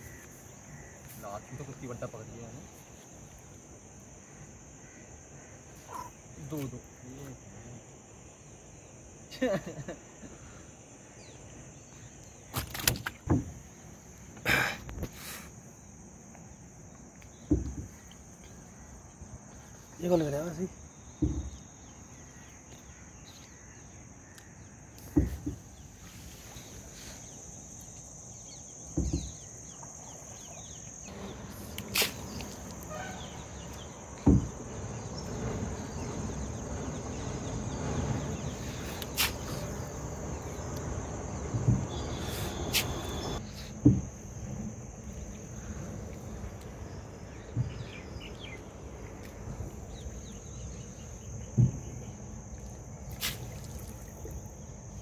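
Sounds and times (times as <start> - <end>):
crickets trilling: 0.0 - 55.0
dull knocks on wooden boat: 13.2 - 13.6, 17.4 - 17.9, 21.2 - 21.6, 25.1 - 25.7, 29.0 - 29.4, 34.2 - 34.6, 41.6 - 42.0, 43.8 - 44.2, 51.5 - 51.9
water sloshing and splashing: 45.0 - 55.0.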